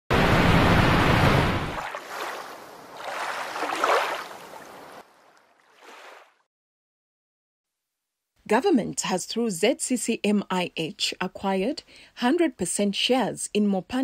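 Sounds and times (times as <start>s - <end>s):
waterfall rushing: 0.1s - 2.4s.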